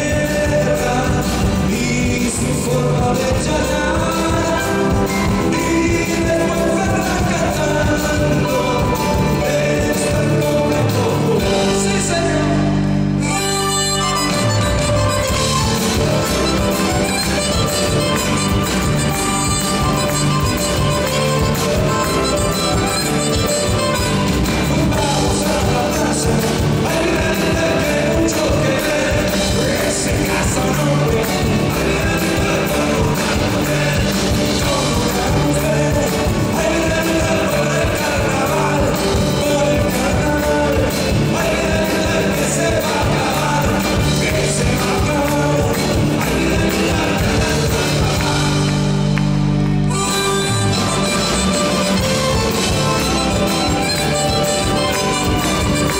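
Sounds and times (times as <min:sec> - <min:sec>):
man singing into microphone: 0:00.0 - 0:49.2
harmonica: 0:12.8 - 0:48.6, 0:49.4 - 0:55.9
steady beat: 0:13.7 - 0:55.9.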